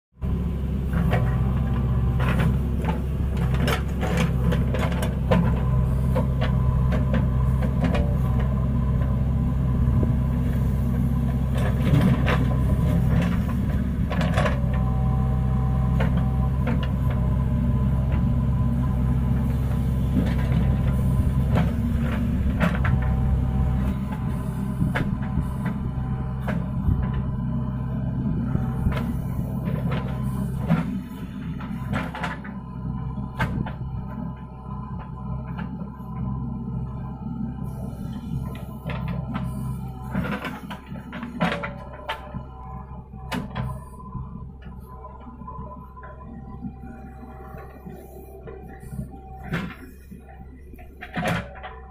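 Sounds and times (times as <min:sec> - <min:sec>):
diesel engine running: 0:00.1 - 0:51.9
bucket clanking and scraping soil: 0:10.5 - 0:14.9.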